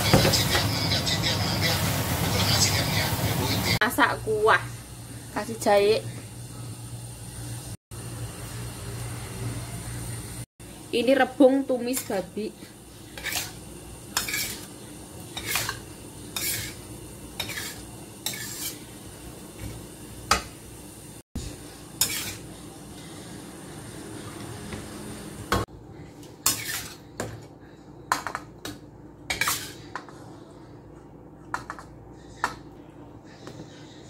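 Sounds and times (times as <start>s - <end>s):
metal spatula scraping a wok: 13.0s - 19.0s, 22.0s - 22.5s, 26.4s - 27.1s, 29.3s - 29.9s.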